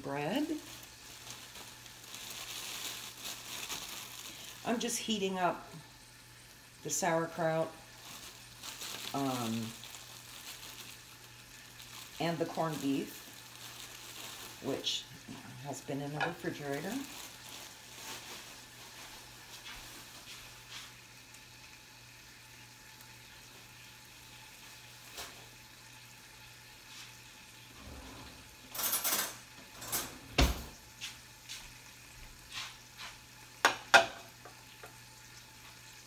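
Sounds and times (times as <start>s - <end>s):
food sizzling quietly in a skillet: 0.0s - 36.0s
dishes and utensils clinking: 28.7s - 30.2s, 33.7s - 34.3s.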